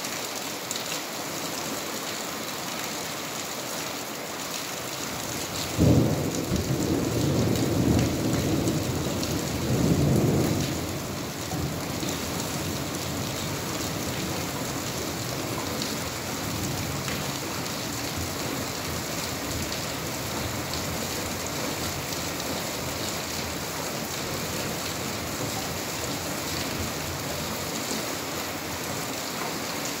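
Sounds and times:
steady rain falling: 0:00.0 - 0:30.0
thunder clap rumbling: 0:05.8 - 0:12.0.

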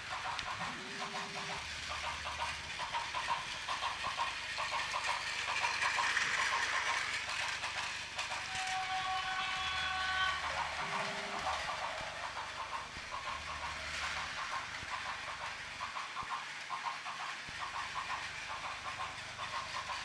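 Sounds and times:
toy train rhythmic clicking: 0:00.0 - 0:20.0.

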